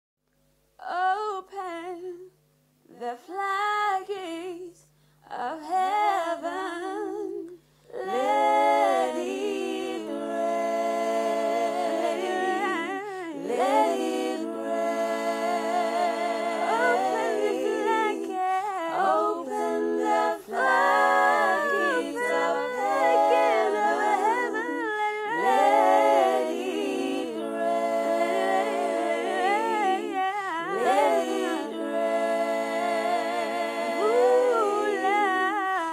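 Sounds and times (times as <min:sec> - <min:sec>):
a cappella humming harmony: 0:00.8 - 0:35.9.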